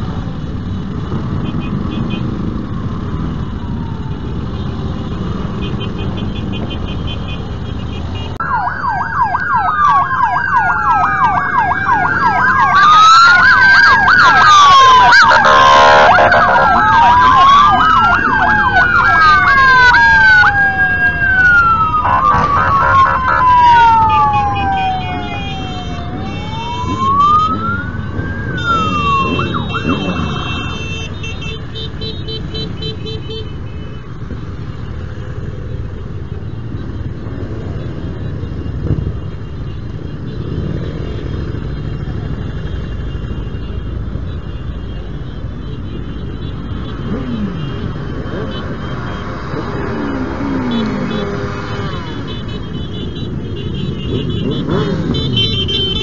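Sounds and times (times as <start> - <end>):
police sirens wailing: 0.0 - 56.0
motorcycles riding past revving: 46.8 - 52.7, 53.9 - 56.0.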